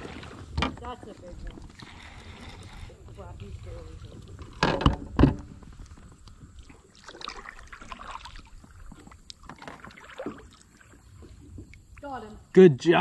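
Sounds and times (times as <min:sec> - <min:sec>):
water sloshing: 0:00.0 - 0:12.4.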